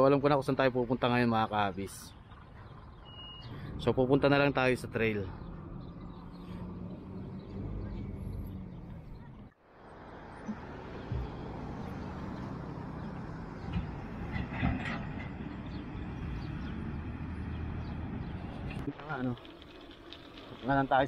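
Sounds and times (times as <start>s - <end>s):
road rumble: 0.0s - 21.0s
light knocks and rattles: 11.0s - 15.9s.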